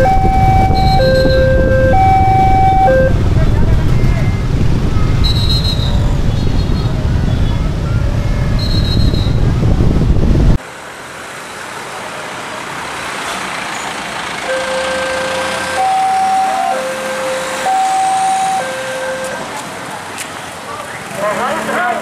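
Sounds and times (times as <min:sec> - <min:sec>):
level-crossing warning alarm: 0:00.0 - 0:03.2, 0:14.4 - 0:19.4
loud low rumble: 0:00.0 - 0:10.6
traffic noise: 0:00.0 - 0:22.0.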